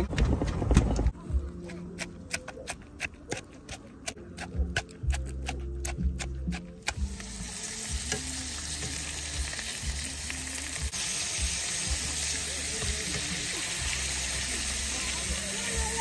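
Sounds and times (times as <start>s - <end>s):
pestle pounding in a mortar: 1.7s - 7.1s
fish sizzling in a pan: 7.0s - 16.0s.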